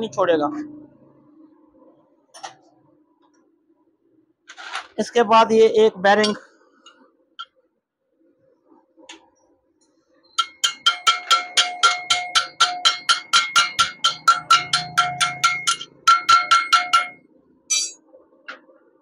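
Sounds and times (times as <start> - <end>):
rapid ringing metallic strikes: 10.4 - 18.0.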